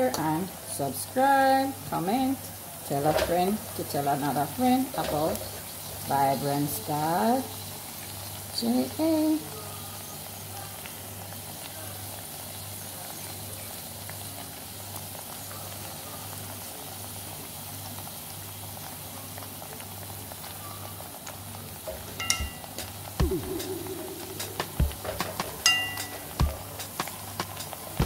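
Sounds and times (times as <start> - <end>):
gravy bubbling and sizzling: 0.0 - 28.0
sharp knocks: 21.9 - 27.8.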